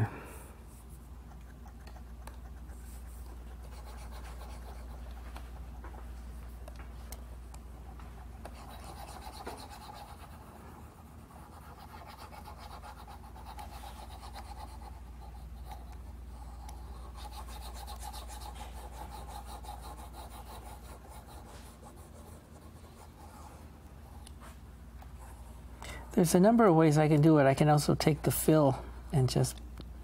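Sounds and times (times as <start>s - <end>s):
steady low hum: 0.0s - 30.0s
stylus scratching on a screen: 0.7s - 24.3s.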